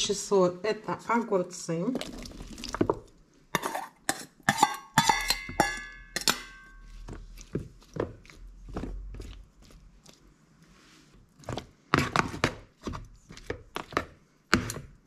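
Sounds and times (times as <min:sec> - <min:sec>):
metal spoon clinking in steel bowl: 0:03.6 - 0:06.9.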